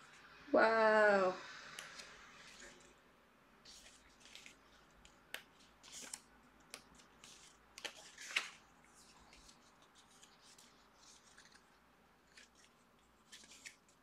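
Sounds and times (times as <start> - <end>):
book pages turning: 1.7 - 3.0, 3.6 - 14.0.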